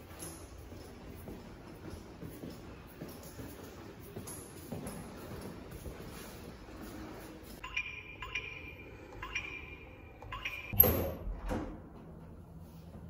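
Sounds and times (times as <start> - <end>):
keypad beeps: 7.6 - 10.8.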